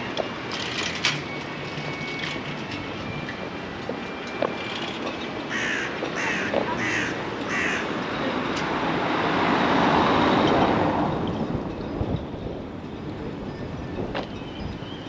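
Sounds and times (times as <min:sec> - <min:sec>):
outdoor background noise: 0:00.0 - 0:15.0
crow cawing: 0:05.5 - 0:07.9.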